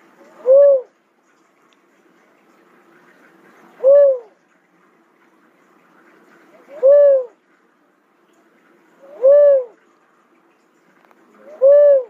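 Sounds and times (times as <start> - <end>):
dove calling: 0.3 - 0.9, 3.8 - 4.3, 6.6 - 7.3, 9.0 - 9.8, 11.4 - 12.0.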